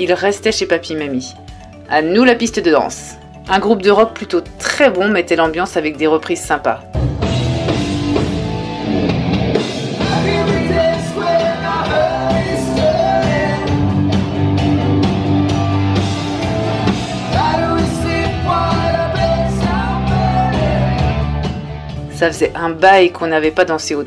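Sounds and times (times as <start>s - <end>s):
drums: 6.4s - 22.6s
electric guitar: 7.0s - 22.1s
bass guitar: 7.0s - 22.4s
person singing: 10.0s - 14.2s, 17.2s - 21.6s.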